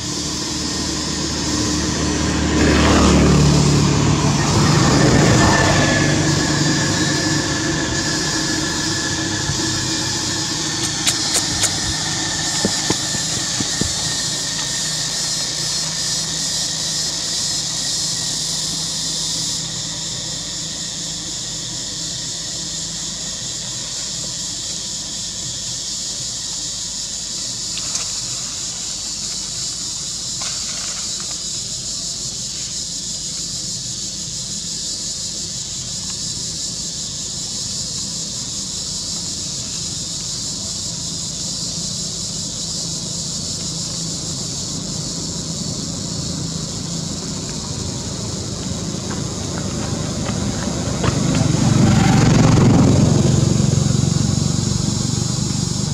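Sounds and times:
steady high-pitched hiss: 0.0s - 55.9s.

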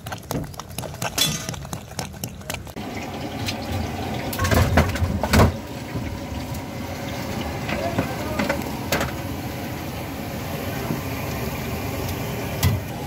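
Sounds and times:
hand squelching wet chutney: 0.0s - 2.8s
steel container clattering: 1.0s - 1.8s, 2.9s - 6.2s.

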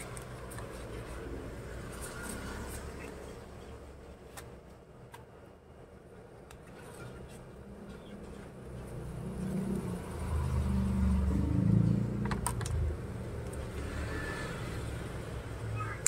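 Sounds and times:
vehicle engine rumble passing: 6.9s - 15.8s.

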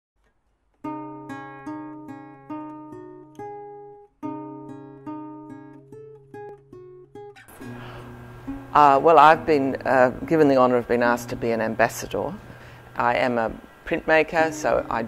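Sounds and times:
acoustic guitar plucking: 0.7s - 15.0s.

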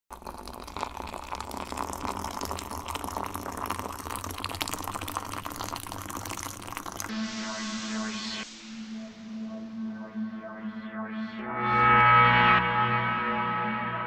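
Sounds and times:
liquid splashing and dripping: 0.2s - 7.1s.

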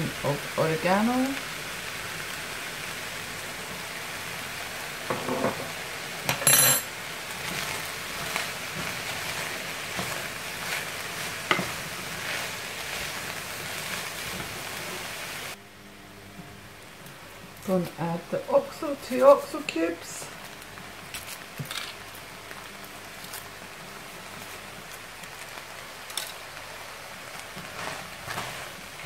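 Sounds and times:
mince and vegetables sizzling: 0.0s - 29.0s
spatula scraping a pan: 7.4s - 15.1s, 27.6s - 28.9s.

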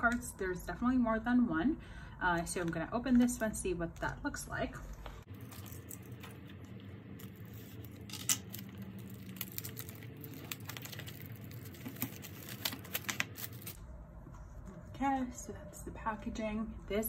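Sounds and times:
plastic wrap crinkling: 5.2s - 13.8s.

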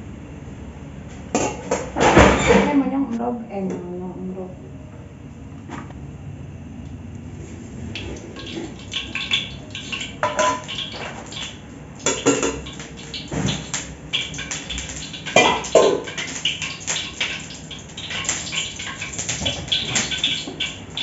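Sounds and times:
metal pots and pans clattering: 8.0s - 21.0s.

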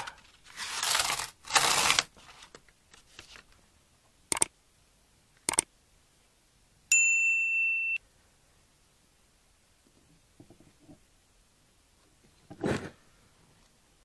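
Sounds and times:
mouse clicks: 4.3s - 4.5s, 5.4s - 5.7s
bell-like ding: 6.9s - 8.0s.

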